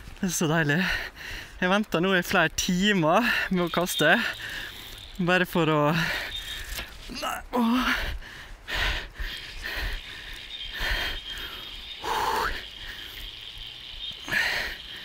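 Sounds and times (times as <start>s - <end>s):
man breathing and groaning: 6.0s - 13.1s, 14.2s - 15.0s
faint steady high tone: 10.4s - 15.0s.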